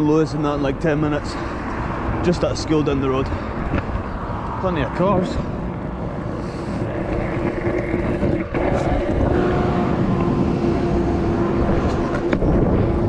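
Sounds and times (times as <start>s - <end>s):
constant hum: 0.0s - 13.0s
scooter wheels rolling on wet tarmac: 5.7s - 9.2s.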